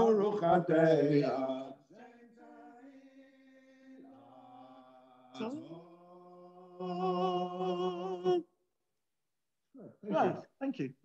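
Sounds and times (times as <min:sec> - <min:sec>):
man chanting liturgical melody: 0:00.0 - 0:04.4.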